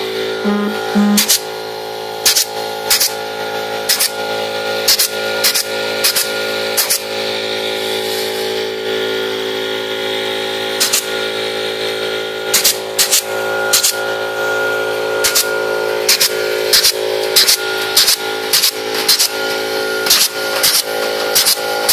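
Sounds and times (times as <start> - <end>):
steady hum: 0.4 - 1.4
pneumatic clip gun clacks: 2.3 - 3.1, 3.9 - 4.1, 4.9 - 7.1, 10.8 - 11.1, 12.5 - 14.0, 15.2 - 15.5, 16.1 - 21.9.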